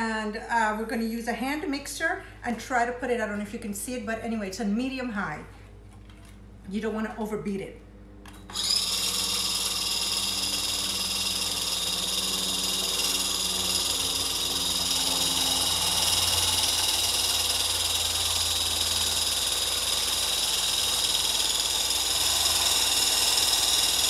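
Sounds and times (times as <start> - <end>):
electric hand mixer whining: 8.5 - 24.0.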